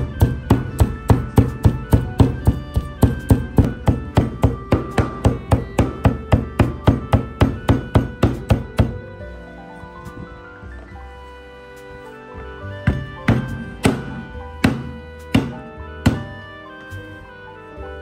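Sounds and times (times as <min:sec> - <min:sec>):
cleaver chopping on wooden board: 0:00.0 - 0:09.0, 0:12.8 - 0:16.3.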